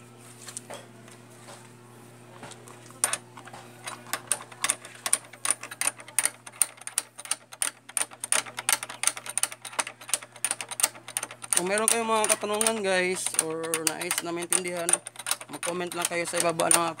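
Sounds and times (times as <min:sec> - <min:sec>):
hand tool clicking on metal: 0:03.8 - 0:17.0.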